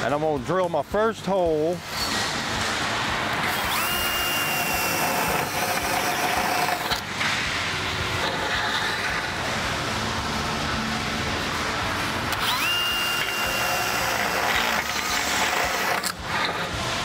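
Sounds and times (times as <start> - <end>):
drill cutting sheet metal: 3.5 - 7.0, 12.3 - 16.7.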